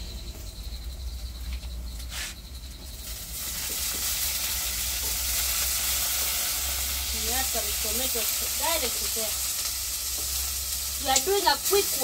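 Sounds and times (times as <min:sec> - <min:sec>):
loud sizzle in frying pan: 0:02.8 - 0:12.0.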